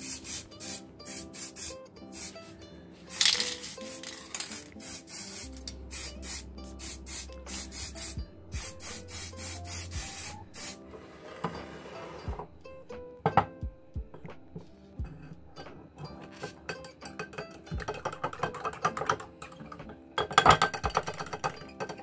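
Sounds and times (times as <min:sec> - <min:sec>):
spray paint can hissing: 0:00.0 - 0:02.5, 0:03.1 - 0:10.8.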